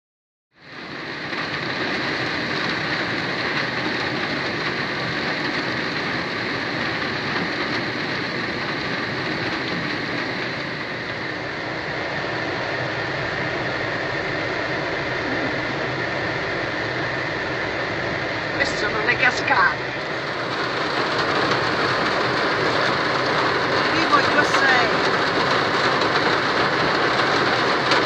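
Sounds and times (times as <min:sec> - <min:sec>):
rain: 0:00.6 - 0:28.0
water cascading and splashing: 0:18.6 - 0:28.0.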